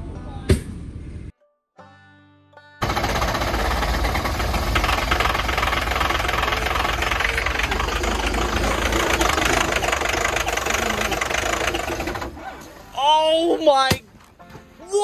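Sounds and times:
diesel engine popping on cold start: 0:02.8 - 0:12.8.

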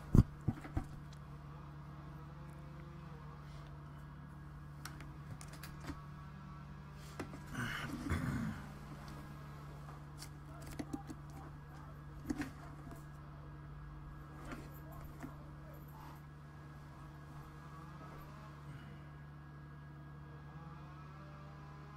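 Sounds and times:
low electrical hum: 0:00.0 - 0:21.9.

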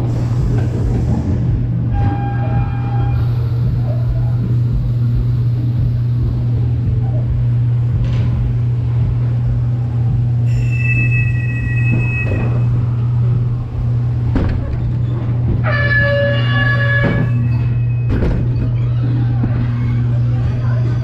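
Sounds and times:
ride car humming along track: 0:00.0 - 0:21.0
high-pitched squeals: 0:10.4 - 0:13.3.

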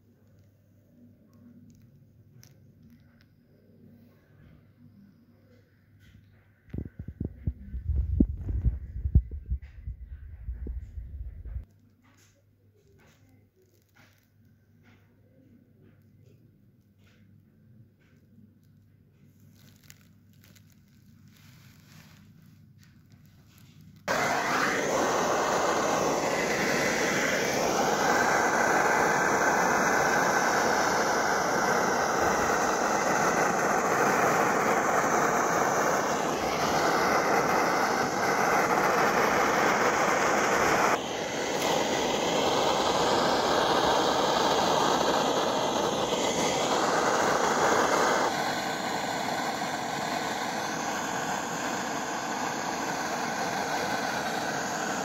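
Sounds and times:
blowtorch flame hissing: 0:23.8 - 0:55.0.

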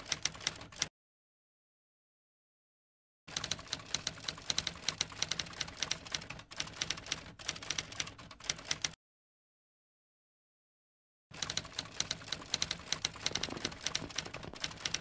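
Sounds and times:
typewriter keys clacking: 0:11.4 - 0:15.0.

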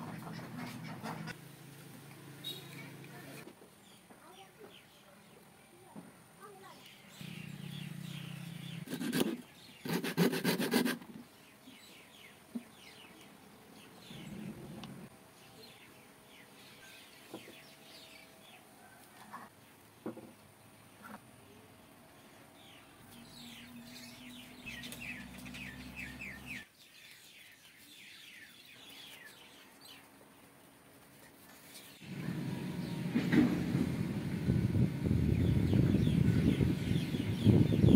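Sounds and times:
faint birds chirping: 0:02.4 - 0:10.4, 0:11.1 - 0:30.9, 0:35.2 - 0:37.9
knife scraping bamboo: 0:08.8 - 0:11.2.

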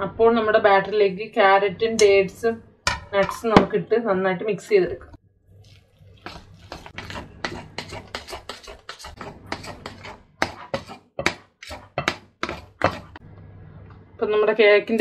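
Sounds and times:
metal spoon scraping bowl: 0:05.7 - 0:13.2.

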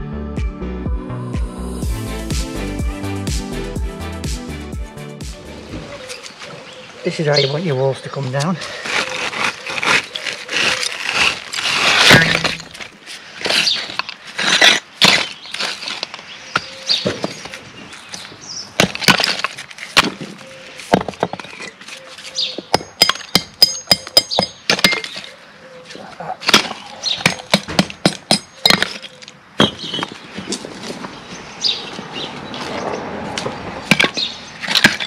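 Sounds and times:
bricks clattering and knocking: 0:10.6 - 0:13.0, 0:18.8 - 0:21.9, 0:22.7 - 0:25.2, 0:26.4 - 0:31.0, 0:33.9 - 0:35.0.

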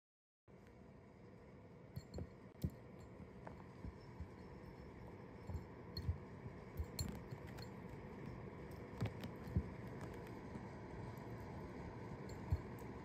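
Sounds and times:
faint steady hum: 0:00.5 - 0:13.0.

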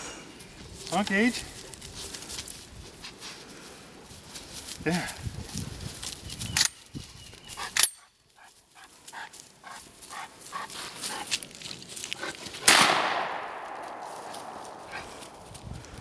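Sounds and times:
loud gunshot: 0:12.6 - 0:14.6
dog moving and breathing: 0:14.2 - 0:15.6.

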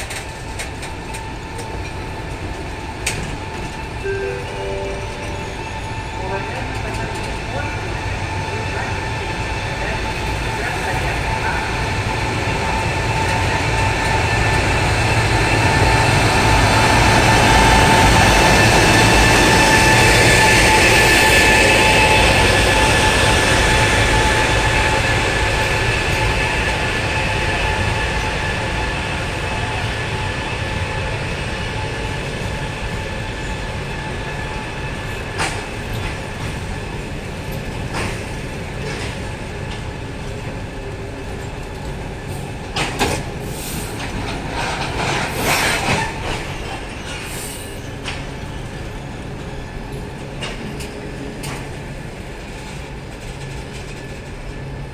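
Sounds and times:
electric locomotive whine: 0:00.0 - 0:54.9
train coaches rolling past: 0:00.0 - 0:54.9.

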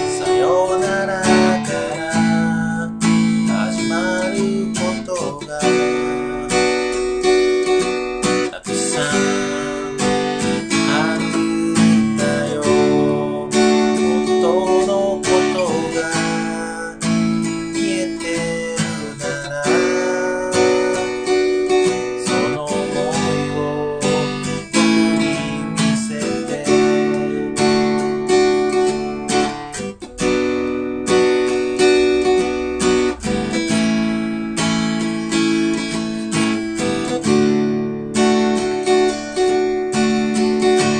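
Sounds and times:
man singing: 0:00.0 - 0:30.0, 0:38.2 - 0:40.9
acoustic guitar strumming: 0:00.0 - 0:40.9.

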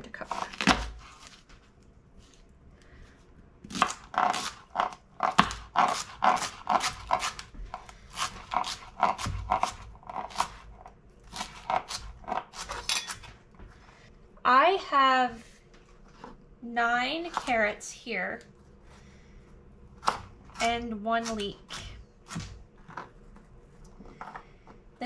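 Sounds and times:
knife chopping vegetables: 0:03.6 - 0:13.3, 0:17.1 - 0:17.7, 0:20.0 - 0:23.0.

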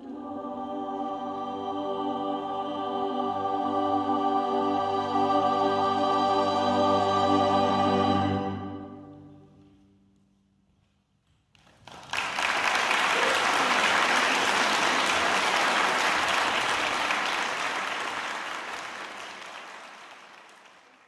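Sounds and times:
audience applauding: 0:11.6 - 0:21.0.

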